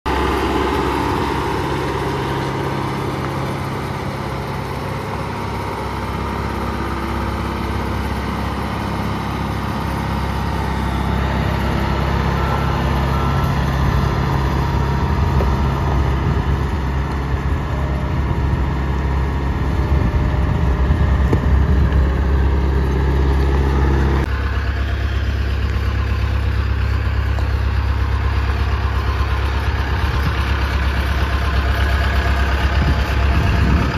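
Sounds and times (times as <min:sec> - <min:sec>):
engine idle hum: 0:00.1 - 0:33.9
street sweeper engine running: 0:00.1 - 0:33.9.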